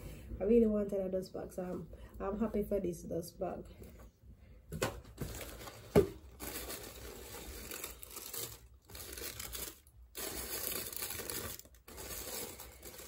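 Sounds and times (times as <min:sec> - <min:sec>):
tissue paper rustling: 0:05.2 - 0:13.0.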